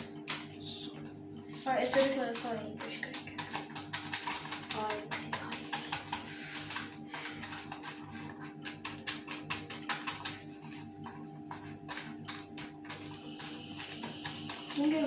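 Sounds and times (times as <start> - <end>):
brush tapping plastic container: 1.7 - 15.0.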